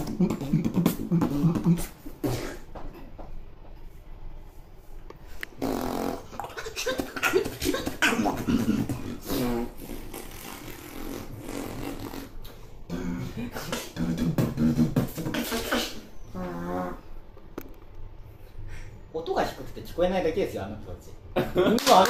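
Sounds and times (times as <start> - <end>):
person beatboxing: 0.0 - 2.7, 5.6 - 17.0.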